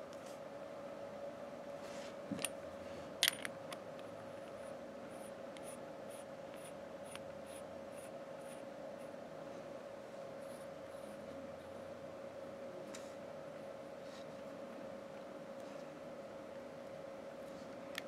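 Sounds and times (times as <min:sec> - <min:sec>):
metal parts clicking: 0:03.2 - 0:03.5.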